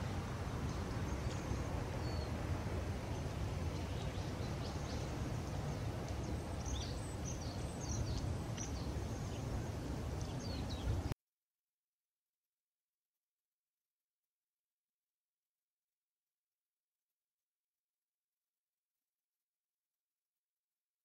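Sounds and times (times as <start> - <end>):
small birds chirping: 0.1 - 2.4, 3.0 - 11.1.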